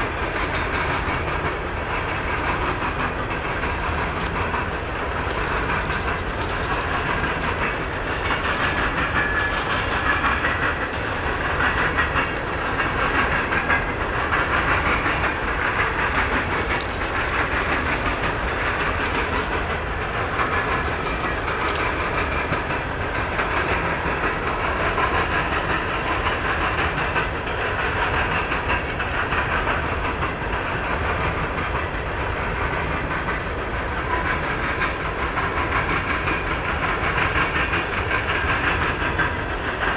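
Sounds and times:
freight train passing: 0.0 - 39.9
steel wheels rumbling on rail: 0.0 - 39.9.

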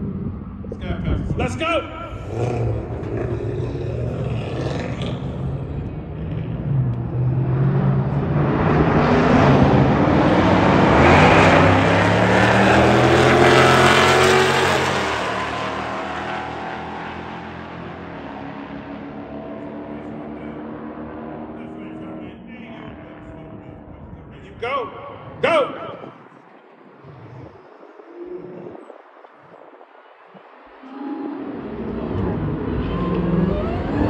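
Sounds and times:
racing cars accelerating: 2.1 - 24.4, 30.8 - 34.0.

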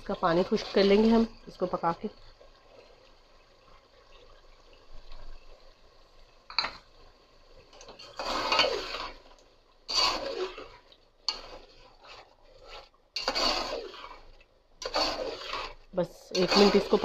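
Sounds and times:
spatula scraping metal pot: 7.8 - 9.2, 9.9 - 17.0.

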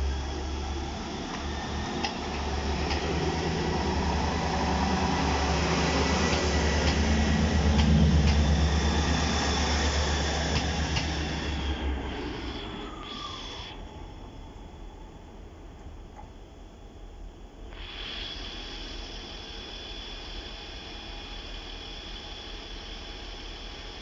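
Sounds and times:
wheels clicking on rails: 0.0 - 14.7
diesel train engine drone: 0.0 - 24.0.

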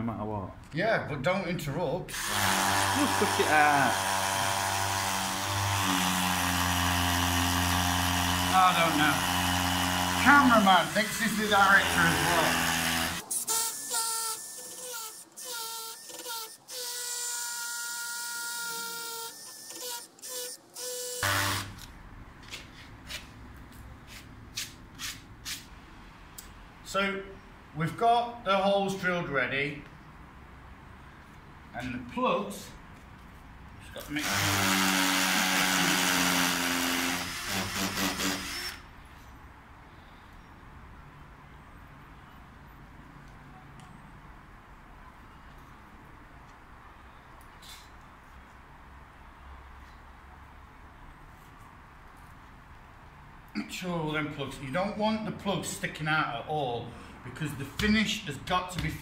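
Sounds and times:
cordless drill whining: 2.1 - 21.9, 34.2 - 38.9.

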